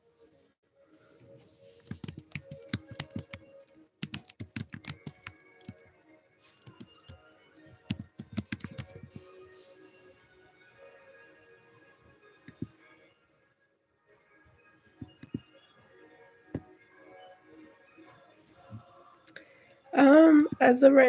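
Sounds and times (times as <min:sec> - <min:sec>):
faint background music: 0:00.0 - 0:21.0
keyboard typing taps: 0:01.8 - 0:03.4, 0:04.0 - 0:05.8, 0:07.9 - 0:09.2, 0:15.1 - 0:15.4.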